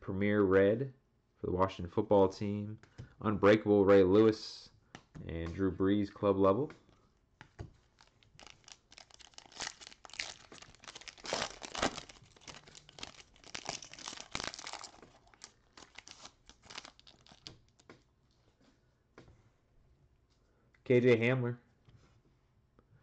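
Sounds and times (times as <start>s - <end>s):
foil pack crinkling and tearing: 7.9s - 17.8s.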